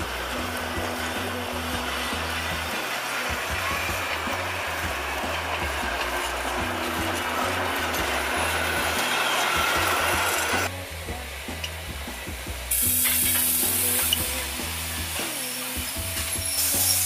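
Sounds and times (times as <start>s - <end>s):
passing train rushing: 0.0s - 10.8s
steam locomotive hiss: 0.0s - 10.8s, 11.4s - 17.0s
background music with bass line: 0.0s - 17.0s.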